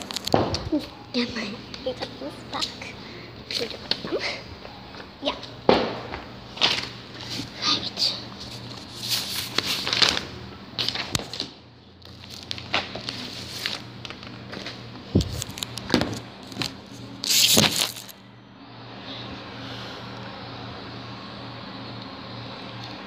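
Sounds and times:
steady low hum: 0.0s - 23.0s
microphone handling noise: 15.1s - 16.2s.

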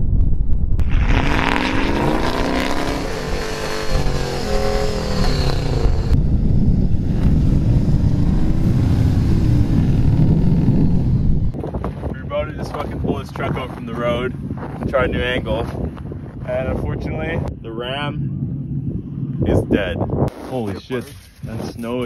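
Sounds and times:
truck engine revving: 0.8s - 11.6s.

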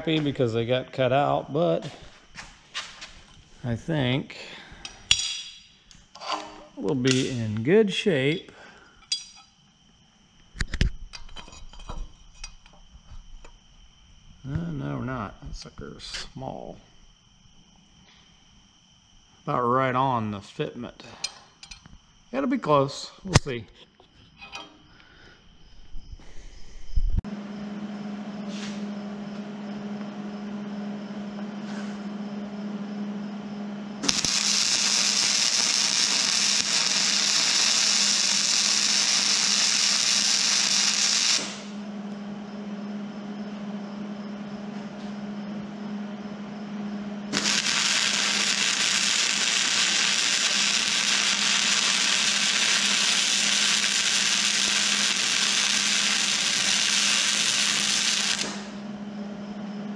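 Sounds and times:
steady hum: 24.4s - 59.9s
arc welding crackling: 34.0s - 41.8s, 47.3s - 58.8s.

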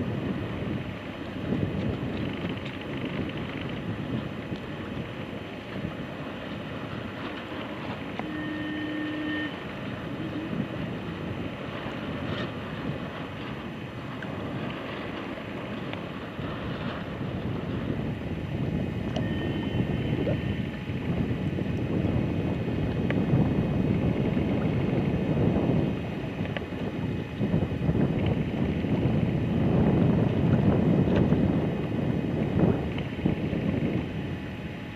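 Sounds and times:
wind buffeting the microphone: 0.0s - 34.9s
brief steady tone: 8.1s - 10.8s, 19.0s - 20.8s.

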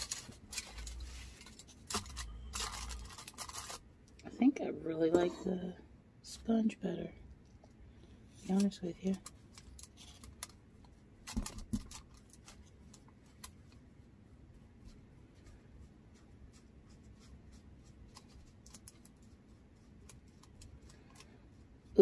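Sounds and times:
sponge brush dabbing and scratching: 12.5s - 22.0s.

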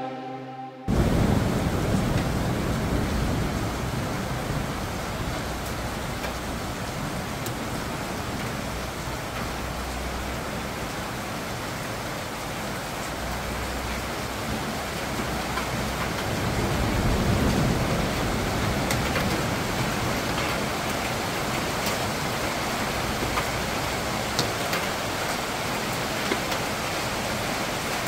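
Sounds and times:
low rumble: 0.0s - 3.4s
steady rain falling: 0.9s - 28.0s.

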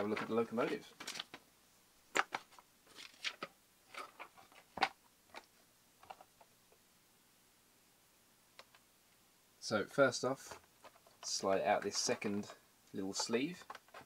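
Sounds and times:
plastic packaging and paper crinkling: 0.0s - 1.4s, 2.1s - 6.2s.

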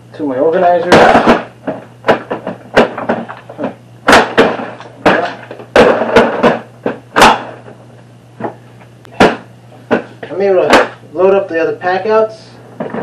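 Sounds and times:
plastic cases clunking: 0.9s - 7.7s, 12.8s - 13.0s.

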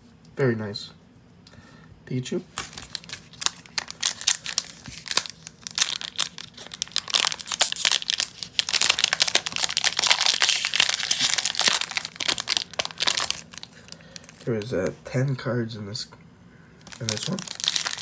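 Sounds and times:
foil pack crinkling: 2.5s - 14.7s, 16.8s - 18.0s.

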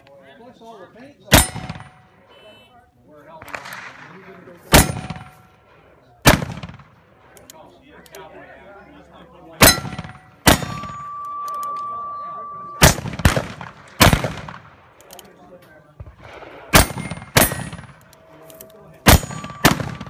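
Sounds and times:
steel targets ringing: 1.3s - 2.1s, 9.6s - 13.0s, 19.0s - 20.0s
revolver gunshots: 1.3s - 2.3s, 3.3s - 7.3s, 9.6s - 11.2s, 12.7s - 15.0s, 15.9s - 18.1s, 19.0s - 20.0s.

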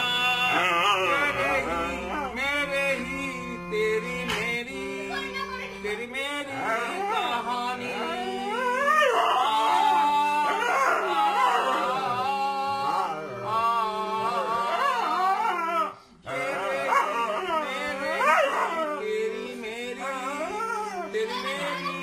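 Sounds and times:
harmonium sustained notes: 0.0s - 15.2s, 16.4s - 22.0s
man singing: 0.0s - 22.0s
dog howling: 8.4s - 13.1s, 14.6s - 16.0s, 16.6s - 19.1s, 20.3s - 21.9s.

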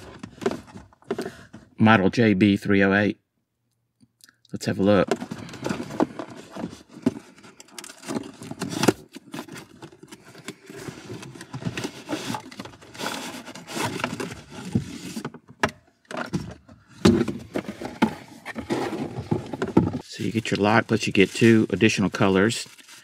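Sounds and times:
cardboard box being opened: 5.1s - 15.4s, 17.0s - 23.0s.

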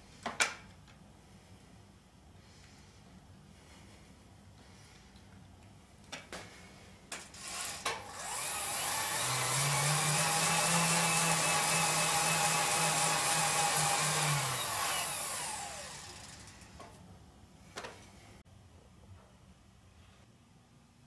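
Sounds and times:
wood chipper motor whine: 7.4s - 16.9s.

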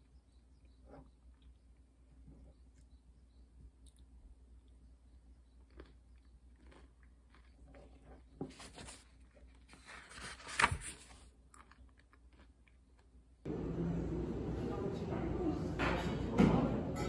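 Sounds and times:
chewing crunchy food: 0.2s - 9.7s, 11.2s - 13.4s.

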